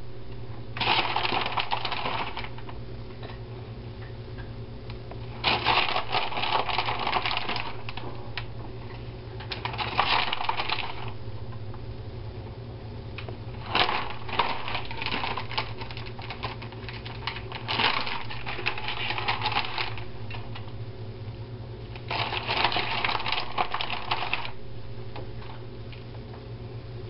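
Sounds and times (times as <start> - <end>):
low steady hum: 0.0 - 27.0
plastic bag crinkling: 0.8 - 2.8, 5.3 - 8.5, 9.4 - 11.2, 13.6 - 20.7, 22.0 - 24.6.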